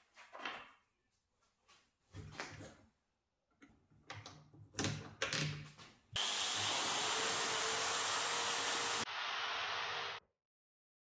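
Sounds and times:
power tool running with whine: 6.2s - 10.2s.

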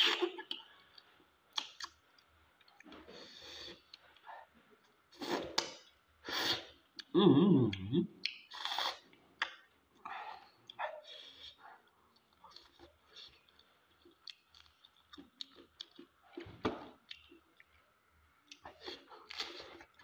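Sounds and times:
chewing and lip-smacking: 0.0s - 3.0s, 7.7s - 20.0s.

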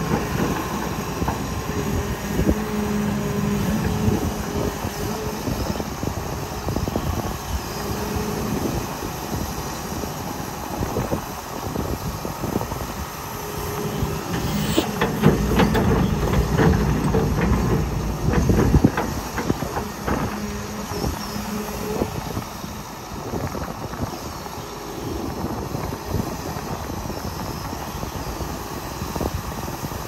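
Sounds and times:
excavator diesel engine: 0.0s - 29.6s
metal clanks and knocks: 14.0s - 21.8s.

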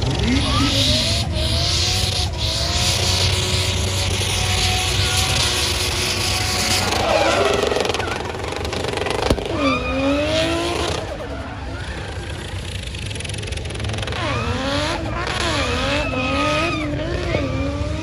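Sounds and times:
car engine revving: 0.0s - 18.0s
tyres screeching: 5.0s - 12.6s.

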